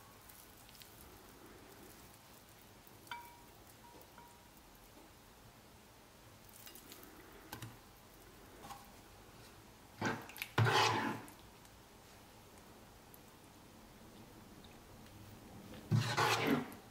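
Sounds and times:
soft rustles of food scattered: 0.0s - 16.9s
glassware clinking: 3.1s - 3.5s
ladle scraping sauce in pan: 10.0s - 11.4s, 15.8s - 16.9s.

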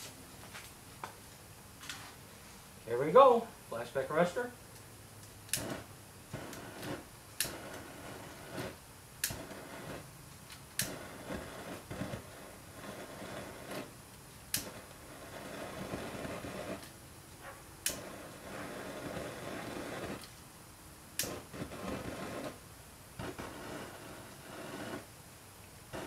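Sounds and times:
faint steady rushing: 2.8s - 26.0s
lighter igniter clicks: 4.8s - 13.9s, 14.5s - 17.0s, 17.8s - 20.3s, 21.2s - 22.6s.

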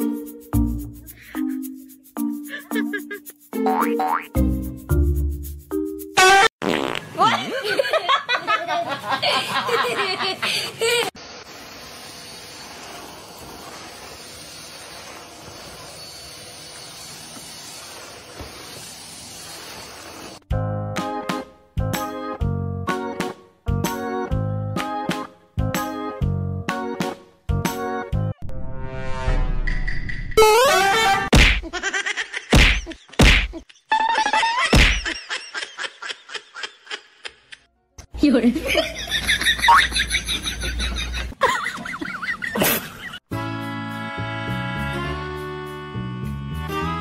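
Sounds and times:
vacuum cleaner hissing: 10.9s - 20.4s
short rising tone: 28.4s - 31.2s.

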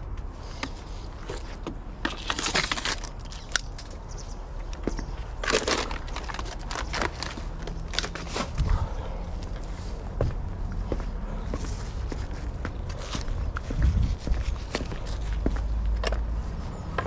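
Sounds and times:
branches and litter rustling: 0.4s - 10.2s.

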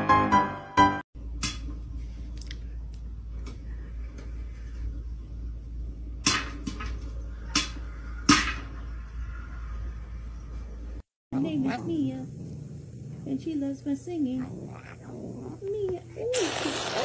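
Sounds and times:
piano music: 0.0s - 1.0s
low steady hum: 1.2s - 16.4s.

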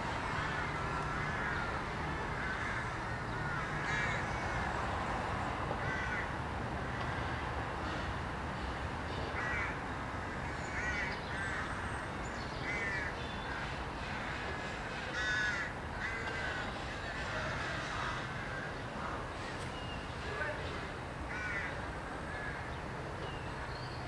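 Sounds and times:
road traffic hum: 0.0s - 24.0s
crows cawing: 0.3s - 4.8s, 5.8s - 6.4s, 9.4s - 11.8s, 12.6s - 13.8s, 15.1s - 19.2s, 21.3s - 22.8s.

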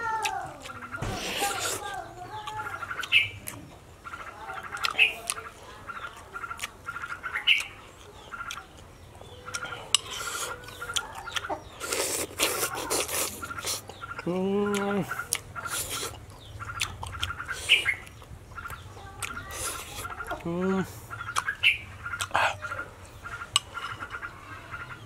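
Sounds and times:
bird chirping: 0.6s - 25.0s
man chewing and lip smacking: 4.6s - 5.5s, 6.1s - 22.6s.

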